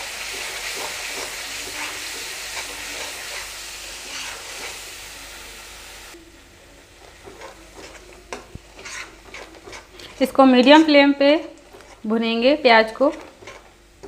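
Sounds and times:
onions sizzling in hot oil: 0.0s - 14.0s
metal spatula scraping: 0.2s - 4.9s, 7.0s - 12.2s, 12.8s - 13.8s.

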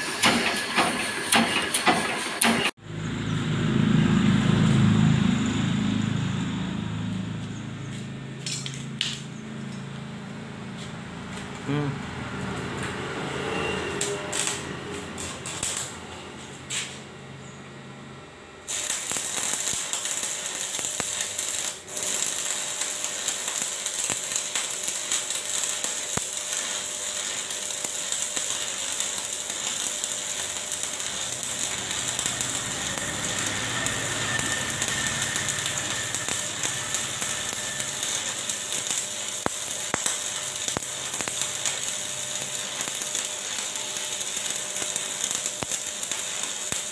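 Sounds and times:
welding arc crackling and hissing: 0.0s - 2.8s, 12.6s - 17.1s, 18.6s - 46.9s.

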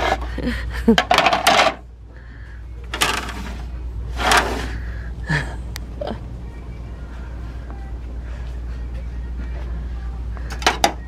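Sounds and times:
steady low hum: 0.0s - 11.0s
plastic platters clacking: 1.0s - 1.8s, 2.9s - 3.6s.

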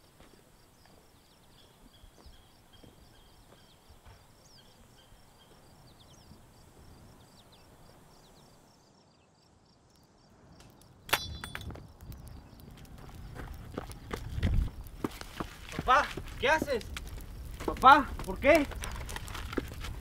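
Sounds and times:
footsteps on dirt track: 0.0s - 4.6s, 11.6s - 20.0s.

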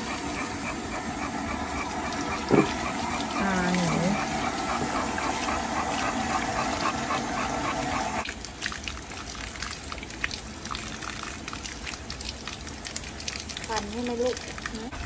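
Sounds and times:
dog panting quickly: 0.0s - 8.2s
water from hose splashing: 0.0s - 15.0s
water dripping off coat: 8.2s - 15.0s.

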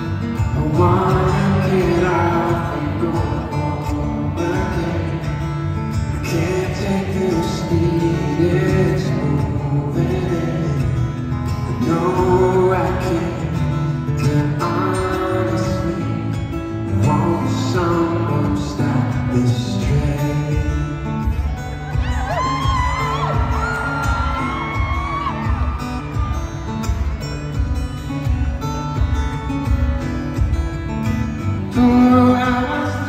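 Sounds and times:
man singing softly: 0.0s - 5.4s, 6.0s - 21.3s, 31.6s - 33.0s
acoustic guitar: 0.0s - 33.0s.

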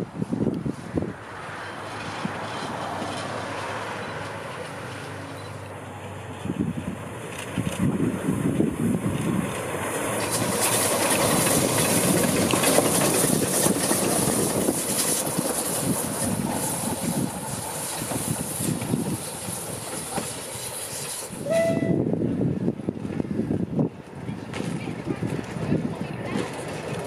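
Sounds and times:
steam locomotives running past: 0.0s - 27.0s
steam whistle toot: 21.4s - 22.1s.

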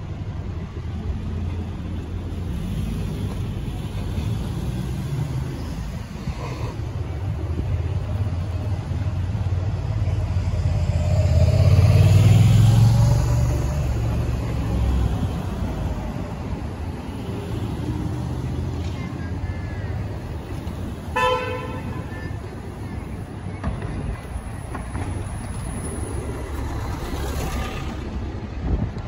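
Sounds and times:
road traffic rumble: 0.0s - 29.0s
motorcycle passing: 10.2s - 15.0s.

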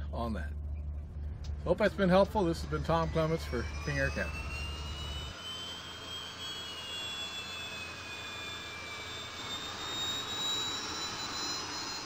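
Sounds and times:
steady rush: 0.0s - 5.4s
aircraft turbine whine: 0.0s - 12.0s.

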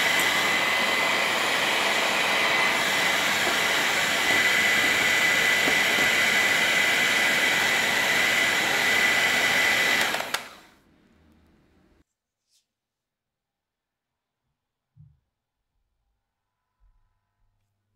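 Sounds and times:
electric hand mixer whirring: 0.0s - 10.8s.

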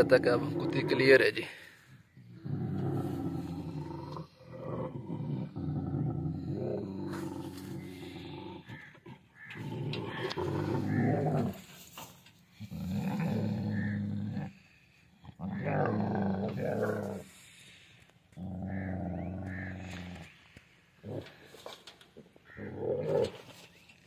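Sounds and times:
large dog growling: 0.0s - 1.2s, 2.2s - 11.7s, 12.6s - 17.5s, 18.3s - 20.3s, 21.0s - 21.5s, 22.6s - 23.5s.

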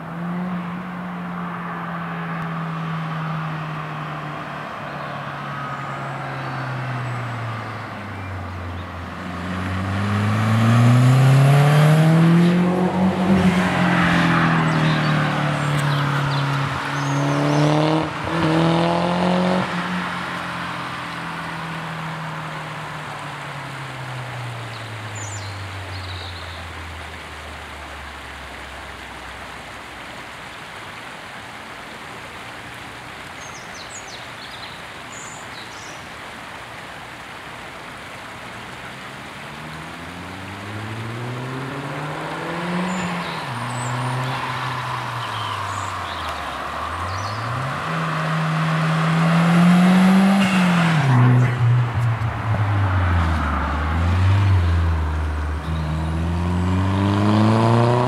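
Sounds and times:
car accelerating past: 9.0s - 22.4s, 39.3s - 58.0s.

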